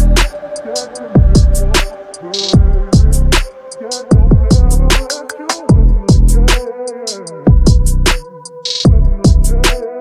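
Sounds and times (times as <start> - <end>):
deep kick drums: 1.2 - 1.8, 2.6 - 3.4, 4.1 - 5.0, 5.7 - 6.5, 7.5 - 8.0, 8.9 - 9.7
hi-hat ticks: 7.0 - 8.9.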